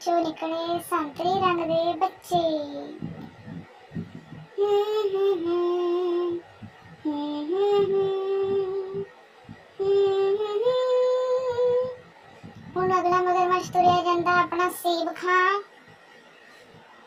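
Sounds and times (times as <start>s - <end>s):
high voice singing: 0.0s - 15.7s.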